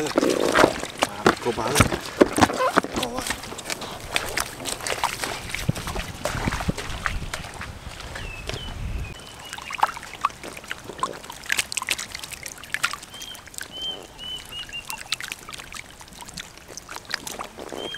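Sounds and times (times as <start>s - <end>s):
faint trickling water: 0.0s - 17.9s
bird chirps: 8.2s - 9.8s, 13.1s - 15.2s.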